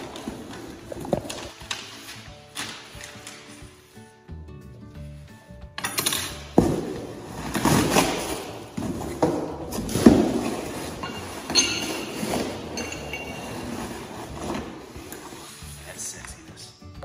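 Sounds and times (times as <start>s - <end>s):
metal parts clinking together: 5.8s - 6.6s, 11.0s - 13.9s.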